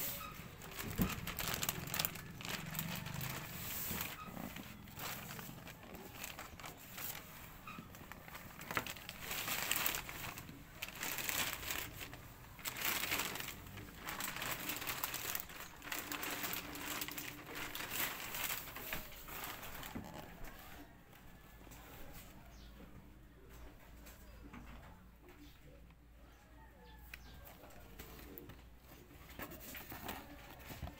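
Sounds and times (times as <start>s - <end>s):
plastic packaging crinkling: 0.0s - 20.6s.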